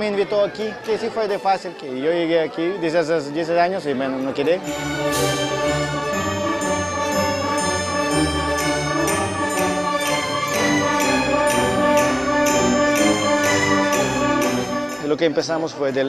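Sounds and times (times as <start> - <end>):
orchestra playing classical music: 2.8 - 15.9
pulse of accented notes: 4.6 - 15.2.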